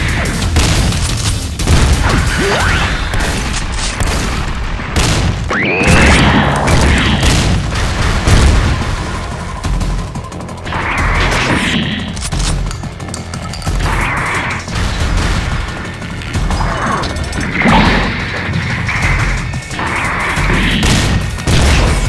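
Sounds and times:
shotgun blasts: 0.6s - 8.9s.

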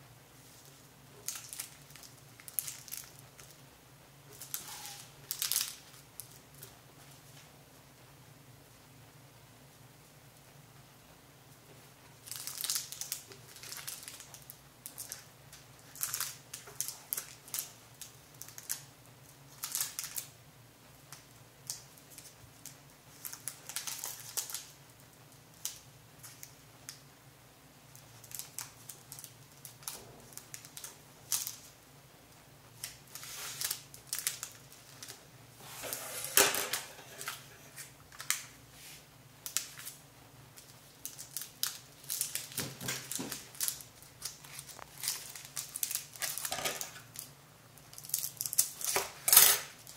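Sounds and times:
faint steady hum: 0.0s - 49.9s
plastic bags crinkling: 0.5s - 3.6s, 4.3s - 6.7s, 12.2s - 18.9s, 19.5s - 20.3s, 21.7s - 24.8s, 27.9s - 31.7s, 32.8s - 38.6s, 39.4s - 49.9s.

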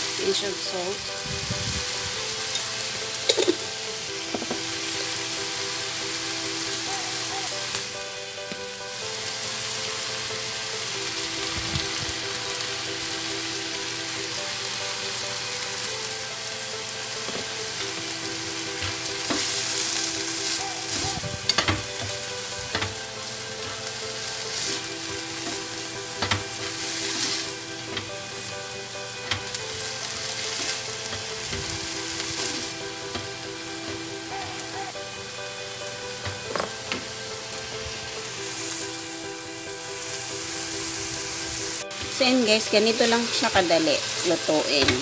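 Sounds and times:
vegetables sizzling in oil: 0.0s - 45.0s
spatula knocking on pan: 4.3s - 4.7s, 36.2s - 37.1s.

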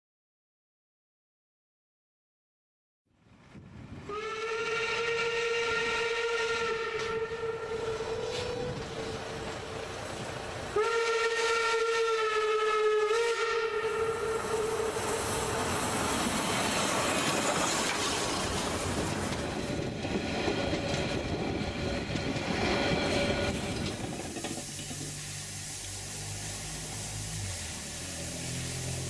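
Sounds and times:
steam locomotive hissing and running: 3.8s - 29.0s
steam whistle blasts: 4.1s - 9.4s, 10.7s - 15.8s.

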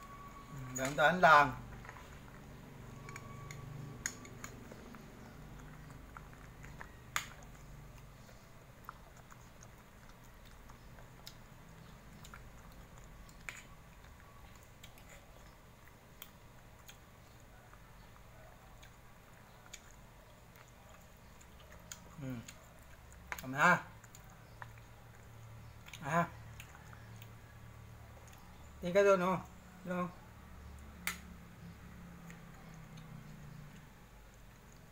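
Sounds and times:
dog chewing bread: 1.0s - 29.1s
sharp clicks: 31.0s - 31.4s.

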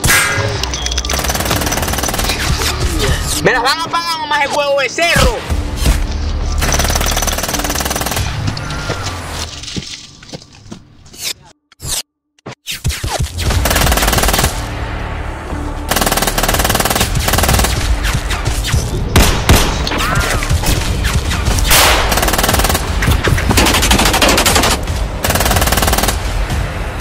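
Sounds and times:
music: 0.0s - 12.3s, 12.9s - 27.0s
automatic gunfire bursts: 21.7s - 22.9s, 23.6s - 26.2s.

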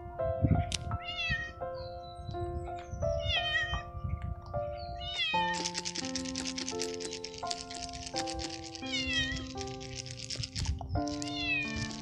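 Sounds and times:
background music of sustained notes: 0.0s - 12.0s
cat meowing: 0.6s - 1.6s, 3.2s - 3.9s, 5.0s - 5.6s, 8.8s - 9.6s, 11.2s - 12.0s
fast rhythmic hiss: 5.3s - 12.0s.

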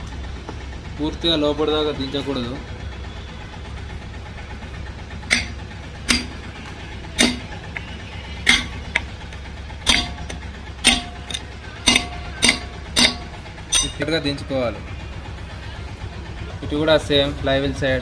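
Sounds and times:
steady low hum: 2.6s - 16.5s
hammer tapping metal: 5.3s - 6.5s, 7.2s - 14.1s.

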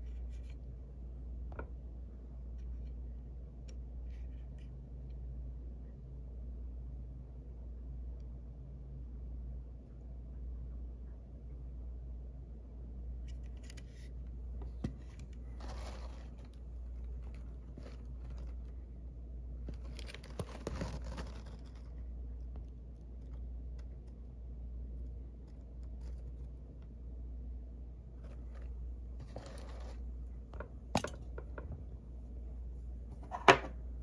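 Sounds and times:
steady low hum: 0.0s - 34.0s
cardboard package rustling: 15.3s - 18.8s, 19.7s - 21.9s.

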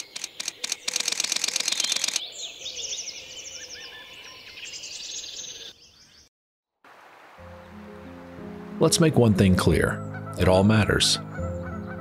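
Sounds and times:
camera shutter clicking: 0.0s - 2.2s
small birds chirping: 0.0s - 6.3s.

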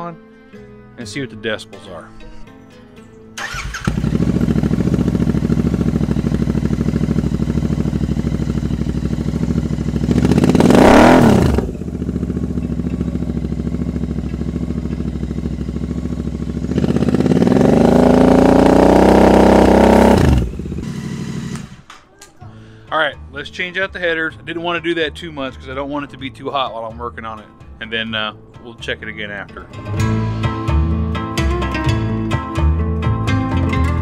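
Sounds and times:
motorcycle engine idling and revving: 3.4s - 21.9s.

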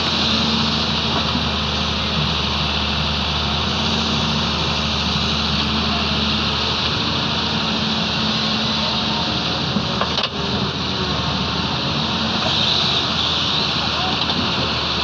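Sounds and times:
heavy diesel engines running: 0.0s - 15.0s.

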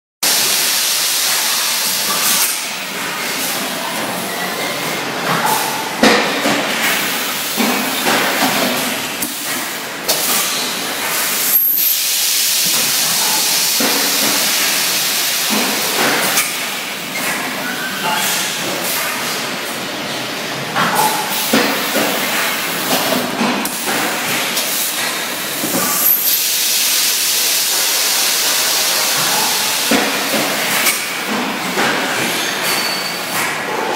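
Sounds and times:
machine air hiss: 0.3s - 3.7s, 6.7s - 17.1s, 21.0s - 33.4s.

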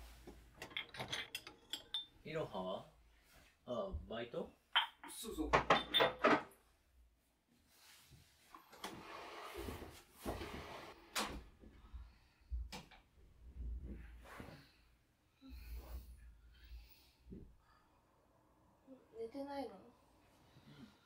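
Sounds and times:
household things being handled: 0.0s - 2.2s, 7.8s - 11.4s.

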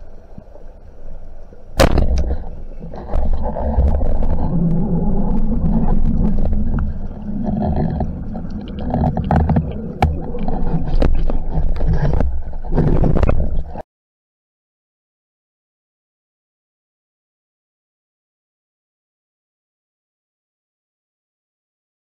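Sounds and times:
muffled underwater swirling: 0.0s - 13.8s
gear clicks and knocks: 5.4s - 13.8s.

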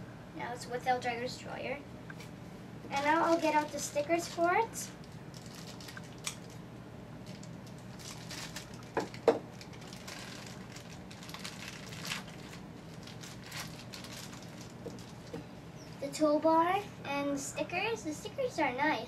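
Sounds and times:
packaging rustling and crinkling: 2.9s - 6.6s, 7.2s - 15.5s.

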